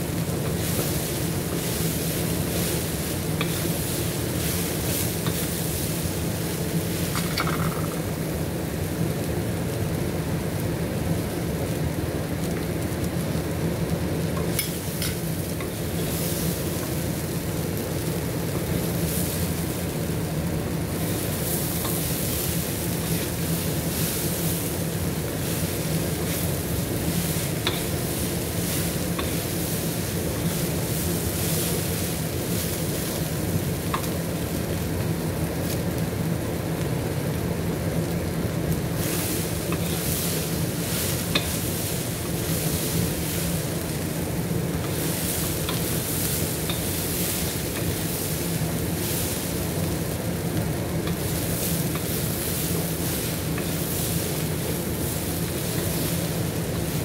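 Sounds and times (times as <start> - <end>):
chickpeas sizzling in oil: 0.0 - 57.0
wooden spatula scraping wok: 0.3 - 7.9, 21.0 - 34.1, 38.9 - 50.2, 51.0 - 57.0.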